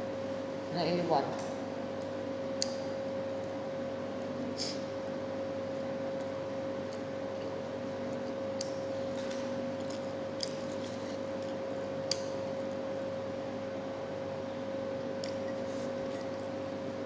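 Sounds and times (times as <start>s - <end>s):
steady background hum: 0.0s - 17.0s
chewing clicks and smacks: 8.1s - 12.4s, 15.2s - 15.4s.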